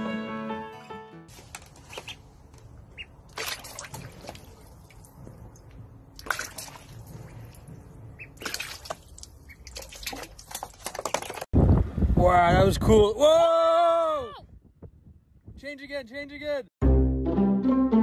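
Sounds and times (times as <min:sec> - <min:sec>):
duckling splashing in water: 0:01.8 - 0:05.1, 0:06.2 - 0:11.4.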